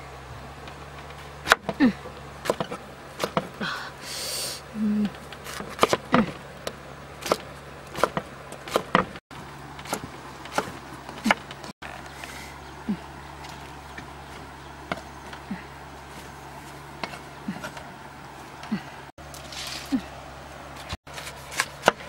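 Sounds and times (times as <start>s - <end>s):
cleaver chopping on wooden block: 1.4s - 1.8s, 2.4s - 3.6s, 5.5s - 6.4s, 7.2s - 9.2s, 9.8s - 11.5s, 21.5s - 22.0s.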